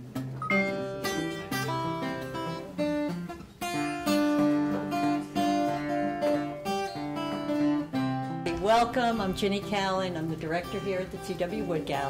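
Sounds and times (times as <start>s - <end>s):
acoustic guitar playing: 0.0s - 12.0s.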